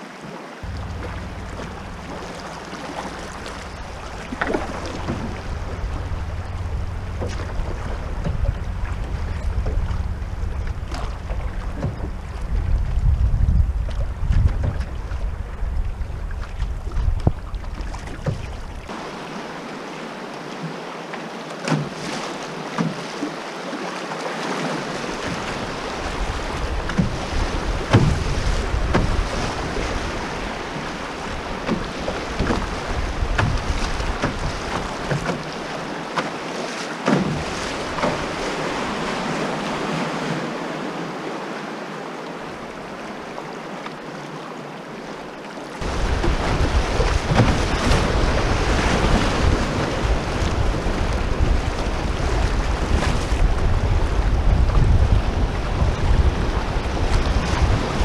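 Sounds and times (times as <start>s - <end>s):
river water rushing: 0.0s - 58.0s
knocks on canoe hull: 0.6s - 12.6s, 14.0s - 15.0s, 26.8s - 27.2s, 27.8s - 29.3s, 31.6s - 35.5s, 37.0s - 38.3s
wind buffeting microphone: 0.6s - 19.0s, 25.1s - 35.6s, 45.8s - 58.0s.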